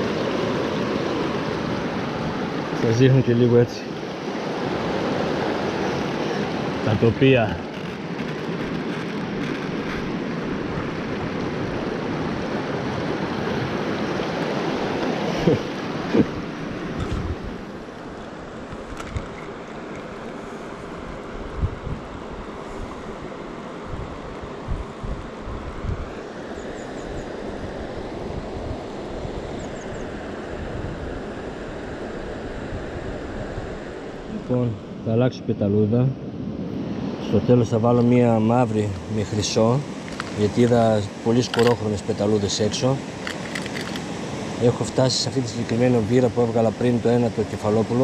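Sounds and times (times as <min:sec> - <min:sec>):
river rushing over stones: 0:00.0 - 0:21.2, 0:37.5 - 0:48.0
wind buffeting microphone: 0:04.0 - 0:34.4.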